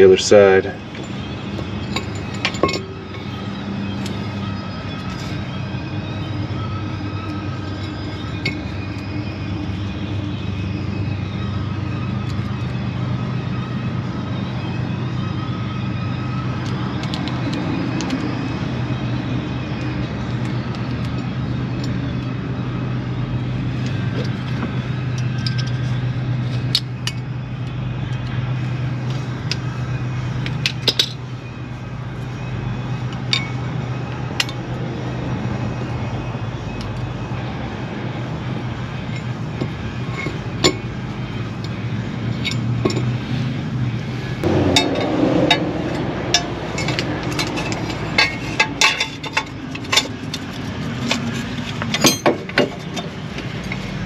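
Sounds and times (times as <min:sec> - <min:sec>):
hand tools clinking on metal: 0:00.1 - 0:04.3, 0:33.1 - 0:33.7, 0:39.0 - 0:43.2, 0:46.3 - 0:54.0
steady low hum: 0:21.1 - 0:54.0.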